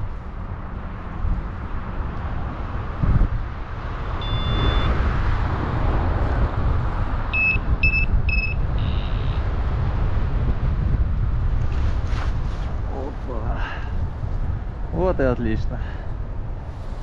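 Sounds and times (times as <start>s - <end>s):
wind rushing over microphone: 0.0s - 17.0s
variometer beeps: 4.2s - 5.0s, 7.3s - 9.4s.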